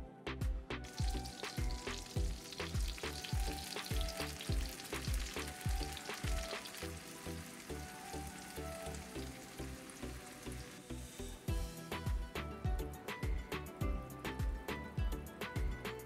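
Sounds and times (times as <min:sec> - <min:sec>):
background music with drum beat: 0:00.0 - 0:10.6, 0:11.4 - 0:16.0
butter sizzling in a frying pan: 0:00.9 - 0:11.4.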